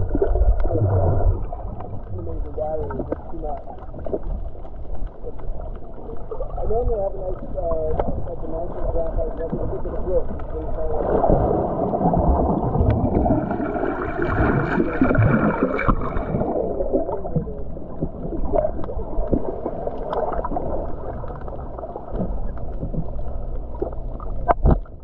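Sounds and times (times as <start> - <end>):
muffled underwater gurgling: 0.0 - 25.0.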